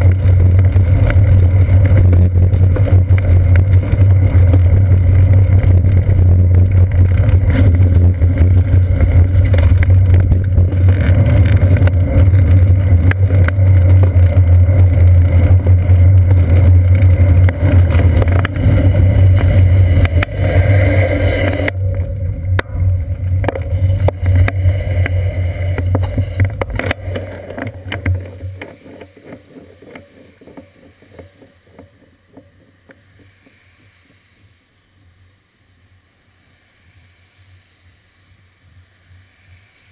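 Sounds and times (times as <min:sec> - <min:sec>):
wind rumble: 0:00.0 - 0:33.9
wet road vibration: 0:00.0 - 0:35.1.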